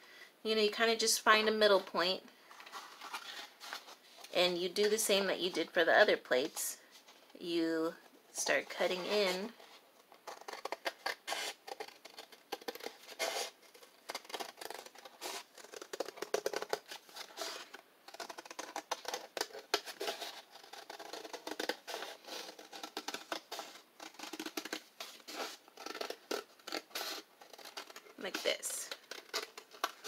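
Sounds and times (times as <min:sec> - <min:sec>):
scissors snipping paper: 0:10.2 - 0:30.0.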